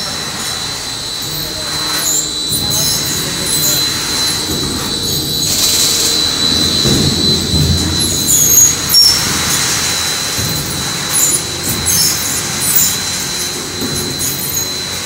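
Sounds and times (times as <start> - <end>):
machine noise with whine: 0.0 - 15.0
short high squeaks: 0.4 - 15.0.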